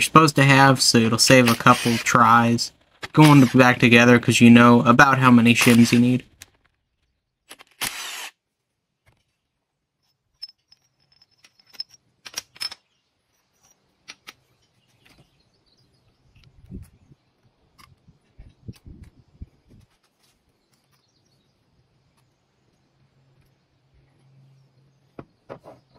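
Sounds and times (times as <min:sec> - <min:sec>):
metal clinks and taps: 0:10.0 - 0:12.8.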